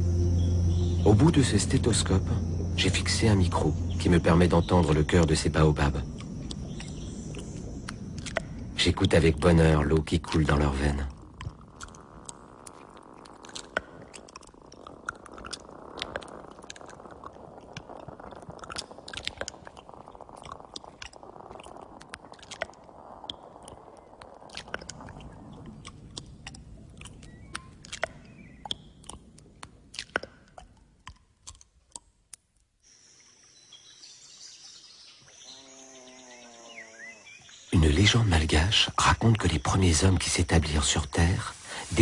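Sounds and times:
steady high buzz: 0.0s - 10.0s
low rushing water: 0.0s - 30.6s
outdoor ambience: 0.0s - 42.0s
dense crackling clicks: 1.2s - 32.8s.

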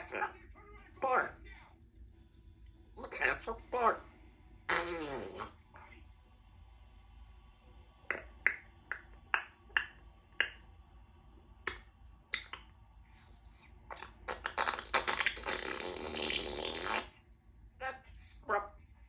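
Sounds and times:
parrot mimicking a fart: 4.7s - 5.7s, 13.9s - 17.2s
parrot clicking: 8.1s - 10.6s, 11.6s - 12.7s.

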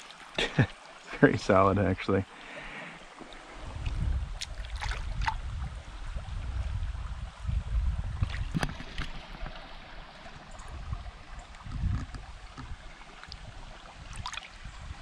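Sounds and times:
stream water flowing: 0.0s - 15.0s
wind buffeting microphone: 3.5s - 9.6s, 10.3s - 15.0s.

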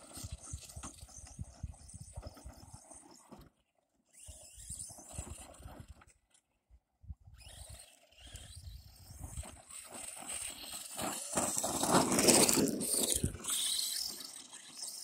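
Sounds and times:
tyres scrabbling on gravel: 10.0s - 14.9s.

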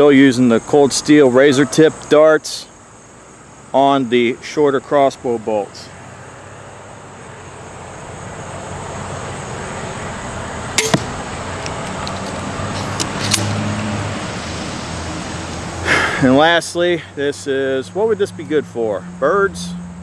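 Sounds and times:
passing vehicle hum: 2.7s - 20.0s
bolt striking foam target: 10.8s - 11.2s
crossbow pistol shot cracks: 10.8s - 11.8s.

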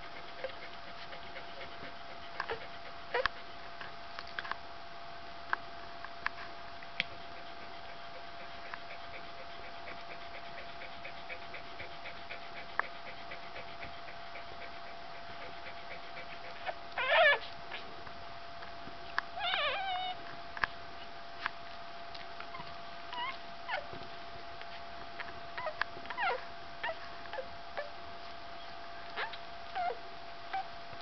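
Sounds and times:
puppies squealing: 16.5s - 17.6s, 19.4s - 20.2s, 22.5s - 23.8s, 25.6s - 27.9s, 28.6s - 30.0s.

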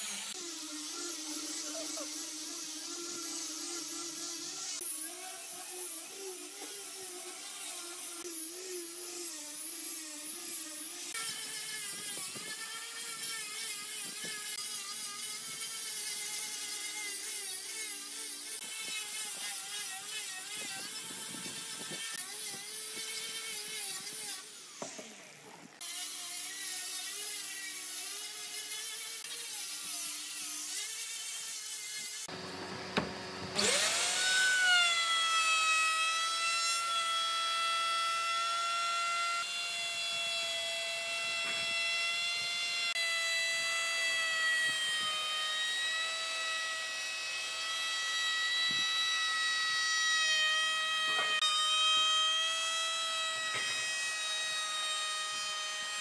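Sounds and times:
angle grinder sanding wood: 0.0s - 56.0s
electric router whine: 0.0s - 56.0s.

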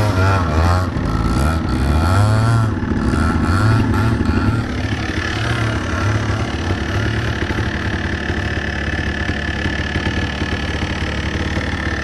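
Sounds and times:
two-stroke engine revving: 0.0s - 12.0s
second engine idling: 2.5s - 12.0s.

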